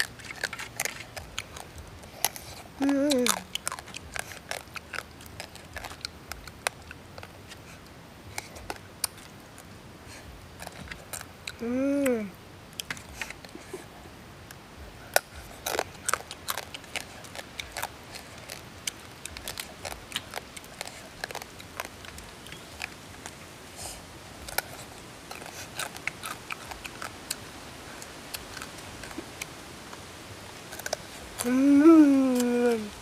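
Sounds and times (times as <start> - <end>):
crab shells cracking: 0.0 - 7.6, 10.5 - 11.6, 15.1 - 23.4, 24.4 - 27.4, 30.7 - 31.5
chewing: 0.0 - 12.1, 12.7 - 33.0.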